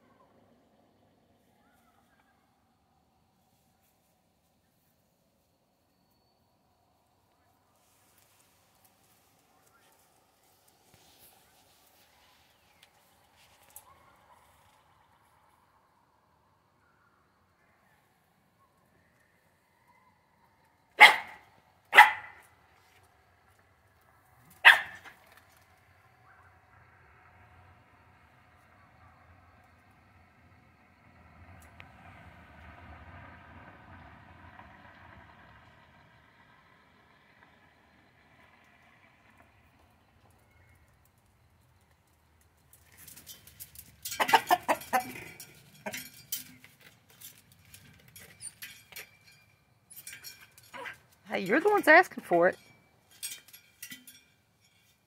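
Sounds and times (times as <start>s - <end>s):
dog barking: 13.8s - 14.6s, 21.0s - 22.5s, 24.6s - 25.2s
rooster squawking and clucking: 44.1s - 46.1s.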